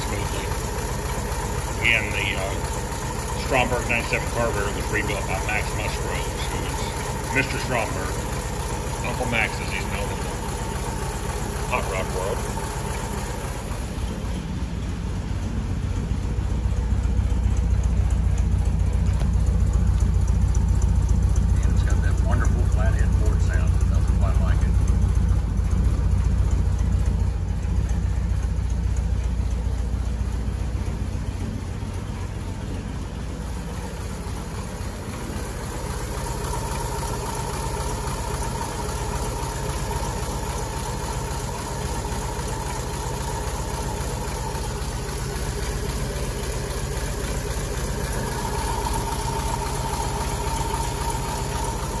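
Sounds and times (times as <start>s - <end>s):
car engine idling: 0.0s - 52.0s.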